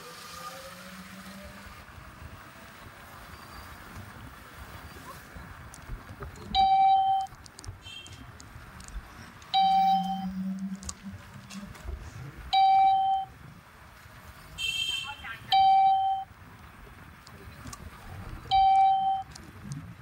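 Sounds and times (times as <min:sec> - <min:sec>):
low road noise: 0:00.0 - 0:20.0
electronic beep tone: 0:06.6 - 0:07.3, 0:09.6 - 0:10.4, 0:12.6 - 0:13.3, 0:15.5 - 0:16.3, 0:18.5 - 0:19.3.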